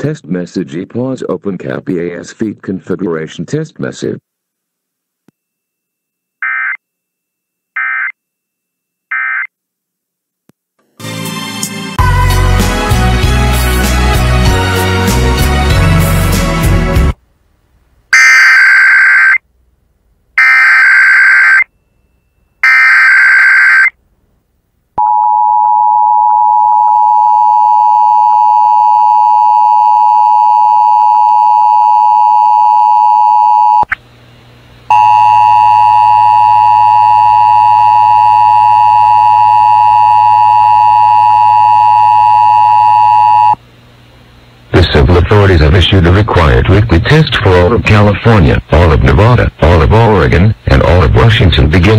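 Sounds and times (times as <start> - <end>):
screeching data bursts: 18.2 - 19.4, 20.4 - 21.7, 22.6 - 23.9.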